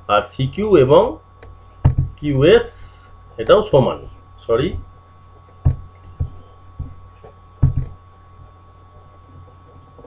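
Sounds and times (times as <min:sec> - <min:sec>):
faint high whine: 0:00.0 - 0:10.0
low electrical hum: 0:00.0 - 0:10.0
dull knocks: 0:01.8 - 0:02.2, 0:05.6 - 0:07.0, 0:07.6 - 0:08.0.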